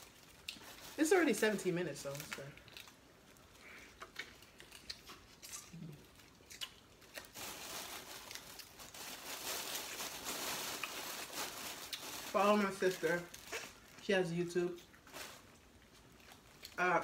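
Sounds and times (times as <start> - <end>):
plastic bags rustling: 0.0 - 3.9, 7.0 - 16.7
mouth chewing and smacking: 2.6 - 7.4.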